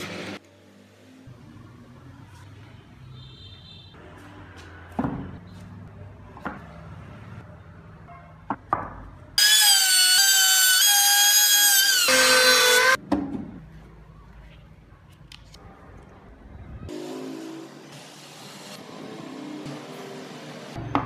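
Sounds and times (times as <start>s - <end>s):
power tool motor whining: 9.4s - 13.0s.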